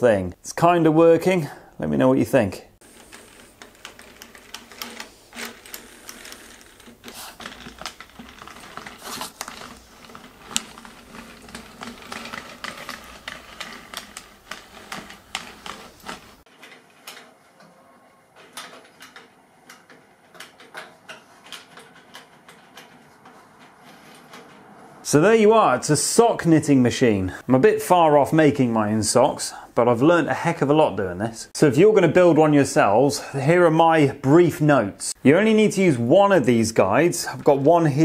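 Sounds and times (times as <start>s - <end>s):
knitting machine clicking and clattering: 2.8s - 25.1s, 36.7s - 38.0s.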